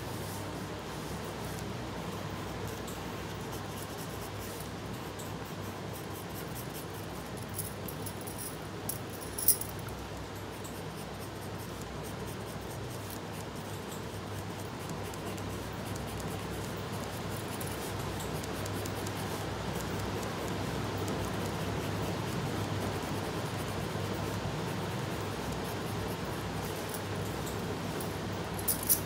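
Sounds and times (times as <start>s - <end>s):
steady hiss and hum: 0.0s - 29.0s
pencil scratching on paper: 2.4s - 7.2s, 10.4s - 26.9s.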